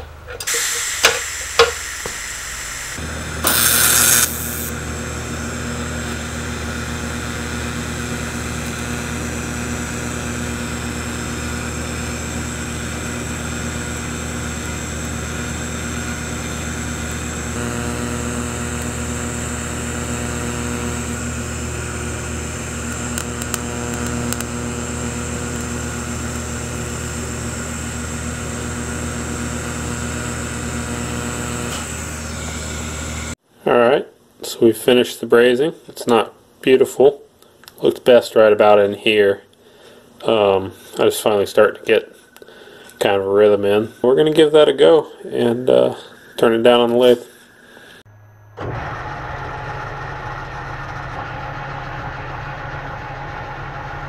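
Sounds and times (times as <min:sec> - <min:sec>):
arc starting hiss: 0:00.4 - 0:04.8
welder arc buzzing: 0:00.4 - 0:33.4.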